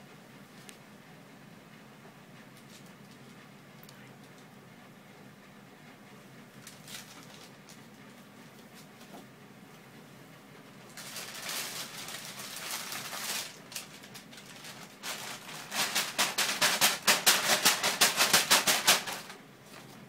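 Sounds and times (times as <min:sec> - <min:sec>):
plastic bag rustling: 0:06.6 - 0:08.0, 0:10.9 - 0:20.0.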